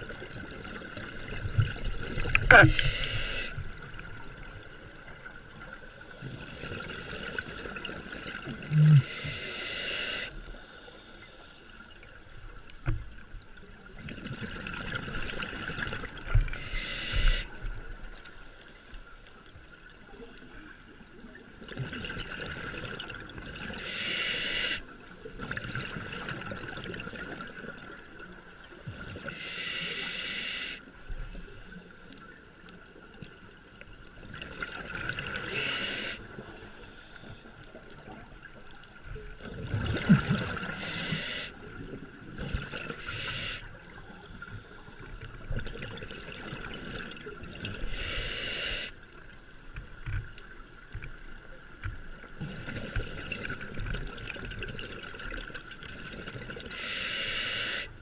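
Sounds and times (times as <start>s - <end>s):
regulator bright hiss: 2.7s - 3.6s, 9.1s - 10.4s, 16.6s - 17.5s, 23.8s - 24.9s, 29.4s - 30.8s, 35.5s - 36.3s, 40.8s - 41.6s, 43.0s - 43.7s, 47.9s - 48.9s, 56.7s - 58.0s
exhaled bubbles rushing: 39.5s - 40.8s.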